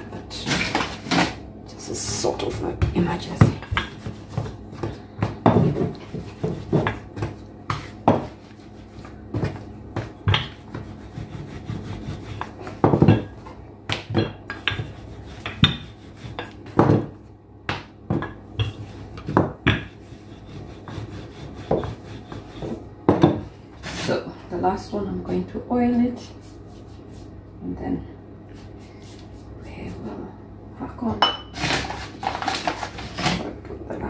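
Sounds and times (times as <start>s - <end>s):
rolling pin knocking on stone: 2.8s - 8.4s, 9.3s - 11.0s, 12.4s - 20.0s, 20.8s - 23.5s.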